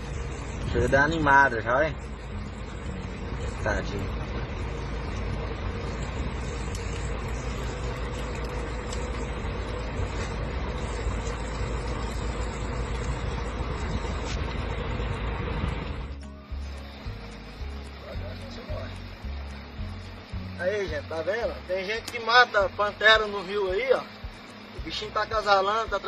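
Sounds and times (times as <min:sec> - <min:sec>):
truck engine idling: 0:00.0 - 0:26.0.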